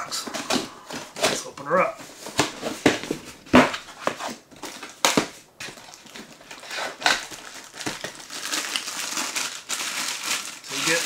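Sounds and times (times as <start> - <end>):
plastic wrapping crinkling: 0.2 - 11.0
sharp cardboard knocks: 2.4 - 4.2.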